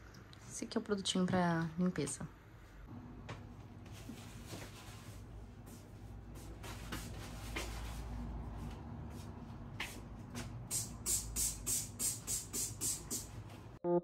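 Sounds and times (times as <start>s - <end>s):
spray bottle hissing sprays: 10.6s - 13.4s.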